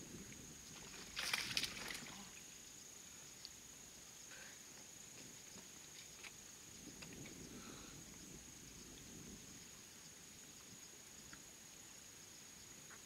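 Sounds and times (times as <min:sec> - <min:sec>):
faint open-air background: 0:00.0 - 0:13.0
small ticks: 0:03.4 - 0:03.6, 0:04.3 - 0:07.4, 0:10.6 - 0:11.5.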